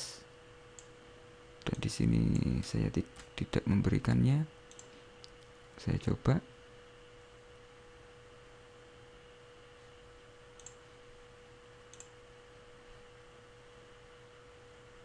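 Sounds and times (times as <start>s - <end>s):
faint steady hum: 0.0s - 15.0s
computer mouse clicks: 4.7s - 5.4s, 10.6s - 10.8s, 11.9s - 12.2s.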